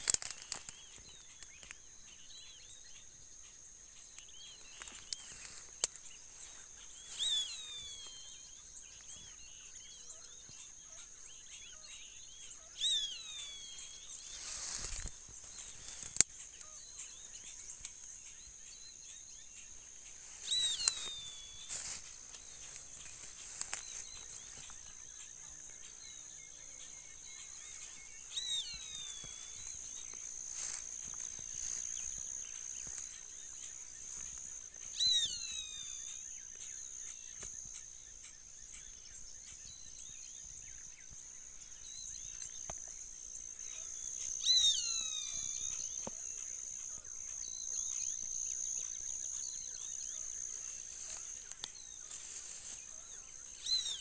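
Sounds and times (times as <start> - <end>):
high insect buzz: 0.0 - 1.7, 12.8 - 18.4, 19.0 - 37.8, 42.0 - 54.0.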